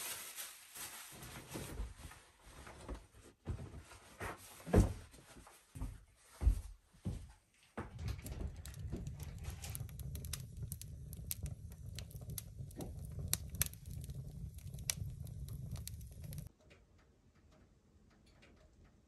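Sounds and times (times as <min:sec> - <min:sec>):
wood fire crackling and popping: 0:07.8 - 0:17.5
fire low rumble: 0:07.9 - 0:16.5.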